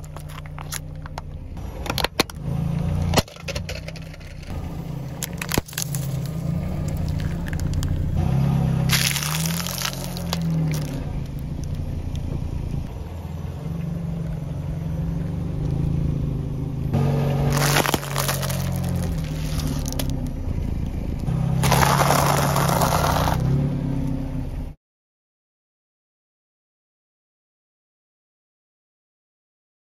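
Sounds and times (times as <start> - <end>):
tyre crushing crunchy food: 0.0 - 0.9, 5.3 - 8.0, 8.9 - 11.0, 17.4 - 20.2, 21.6 - 23.4
pretzels crunching loudly: 5.2 - 7.9, 8.9 - 11.0, 17.4 - 20.2, 21.6 - 23.4
plastic wrapper crackling: 8.9 - 11.0, 17.5 - 20.1.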